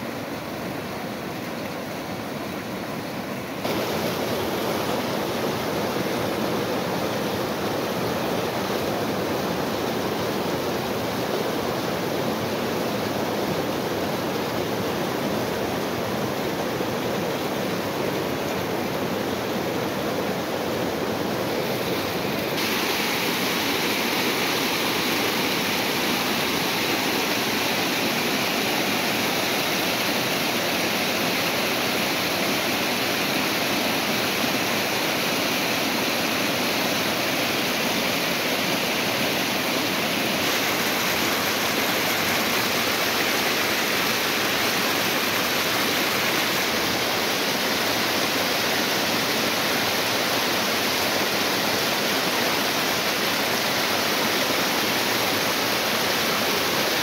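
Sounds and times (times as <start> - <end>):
stream rushing over rocks: 0.0 - 57.0.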